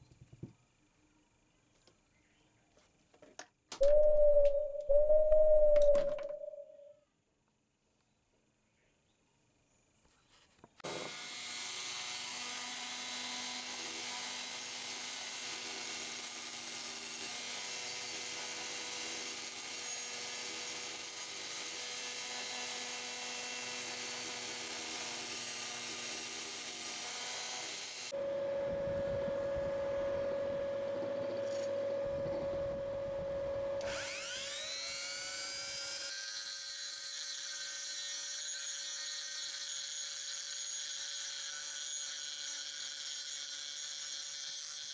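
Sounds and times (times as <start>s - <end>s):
rotary tool grinding metal: 33.8s - 44.9s.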